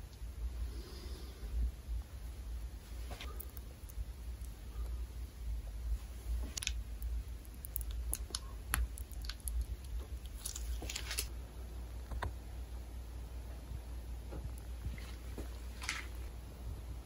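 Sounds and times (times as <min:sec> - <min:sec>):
steady low hum: 0:00.0 - 0:17.0
small clicks and crinkles: 0:06.4 - 0:11.3, 0:14.4 - 0:16.3.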